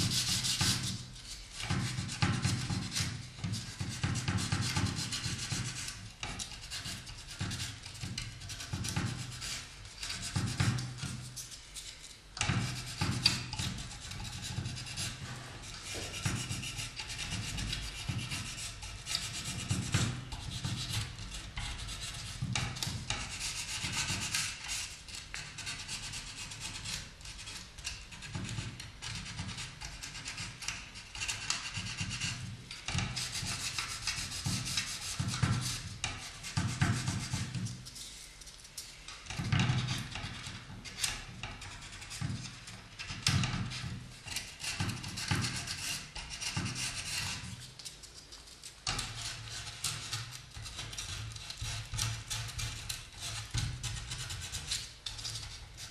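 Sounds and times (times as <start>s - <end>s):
scratchy sanding strokes on wood: 0.0s - 11.3s, 12.6s - 21.2s, 31.6s - 37.6s.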